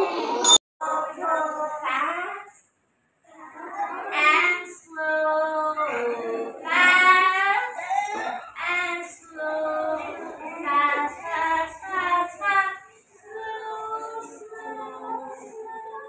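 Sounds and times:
young children singing: 3.4 - 16.0.

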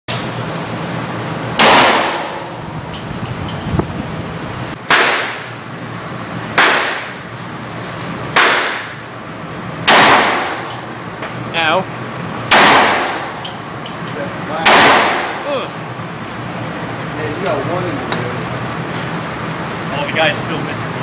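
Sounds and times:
pistol shots echoing indoors: 1.6 - 2.6, 9.8 - 10.8, 12.5 - 13.4, 14.6 - 15.4.

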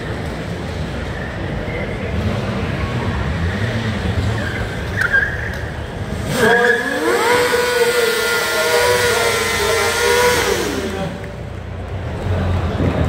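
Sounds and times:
motorcycle engine revving: 5.9 - 11.7.

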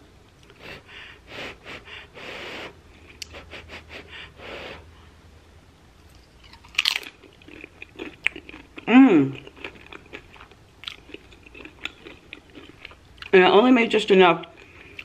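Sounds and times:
soft breathing through nose: 0.5 - 5.2
crunch of chip bitten: 6.1 - 13.0.

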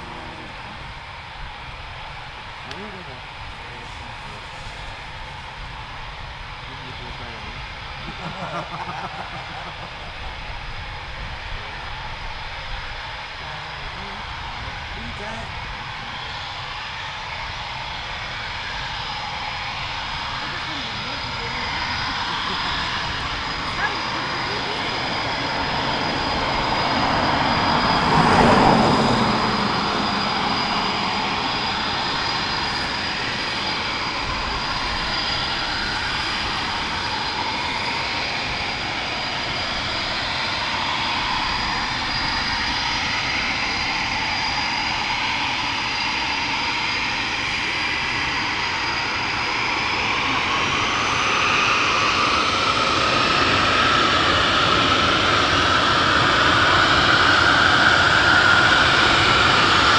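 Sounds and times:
dense rushing noise: 0.0 - 45.9
jet engines whining: 0.0 - 59.9.

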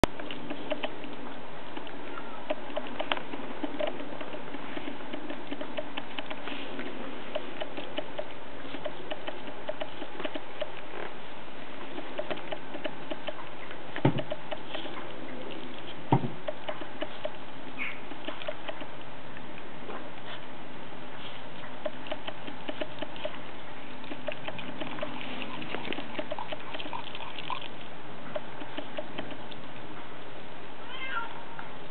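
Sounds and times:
puppy gnawing on bone: 0.0 - 20.5, 21.1 - 29.9
loud knocks: 16.1 - 16.4.

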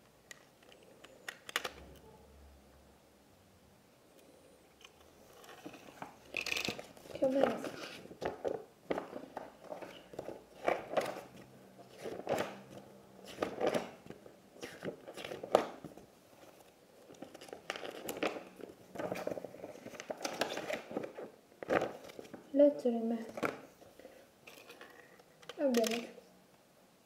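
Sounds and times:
magazine pages rustling: 5.1 - 25.1.

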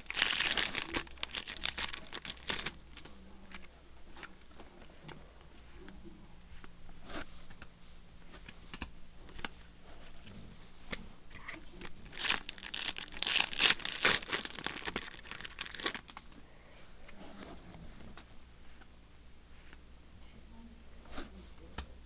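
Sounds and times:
foil wrapper crinkling: 0.0 - 3.1, 11.8 - 16.2.

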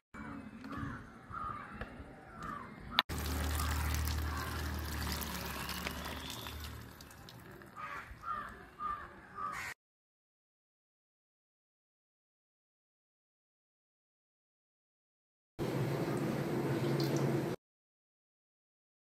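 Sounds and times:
crows cawing: 0.6 - 6.5, 7.8 - 9.8
water pouring into a colander: 3.1 - 7.8.

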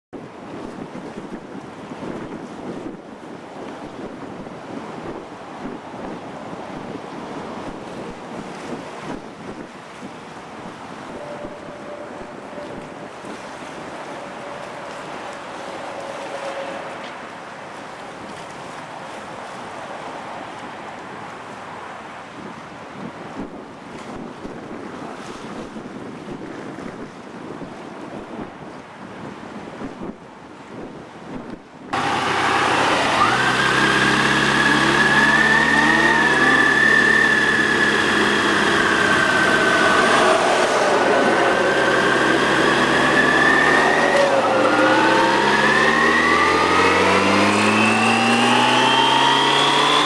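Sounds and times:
wind: 0.0 - 50.0
thin high whine: 11.0 - 17.8, 32.0 - 50.0.

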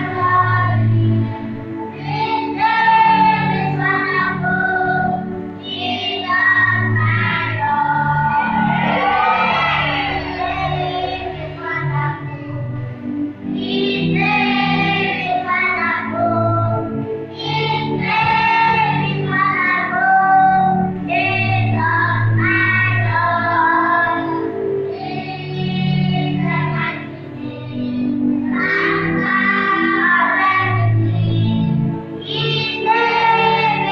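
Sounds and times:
instrumental accompaniment: 0.0 - 33.9
high voice singing: 7.8 - 11.4.

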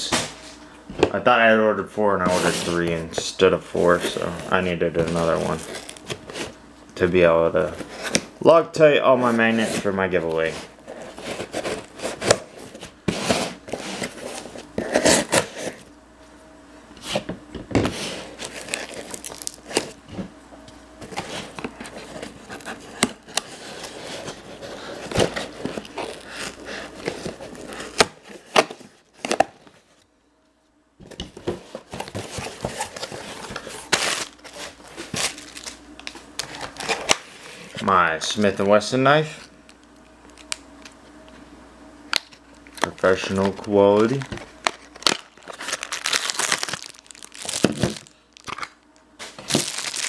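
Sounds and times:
cardboard tearing and crinkling: 3.9 - 6.6, 9.5 - 15.8, 17.8 - 20.0, 21.0 - 29.7, 31.4 - 37.5, 42.8 - 50.0.

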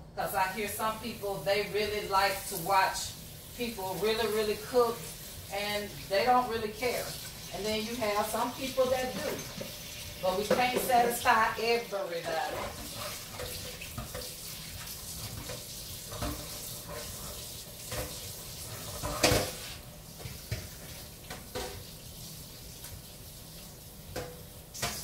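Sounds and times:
dishes clattering: 18.8 - 19.7
tap running into a sink: 19.0 - 21.9, 24.1 - 25.0.

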